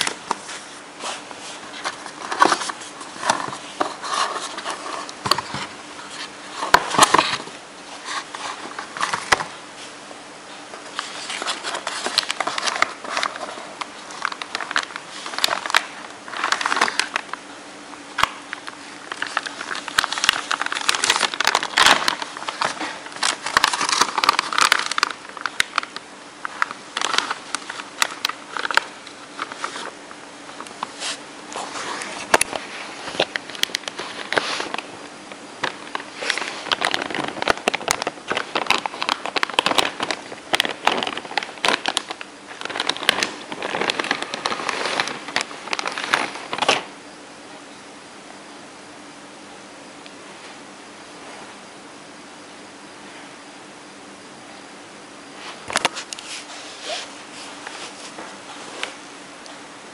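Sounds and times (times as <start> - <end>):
plastic bag crinkling: 0.0 - 9.6, 10.8 - 17.4, 18.1 - 46.9
faint steady hum: 0.0 - 59.9.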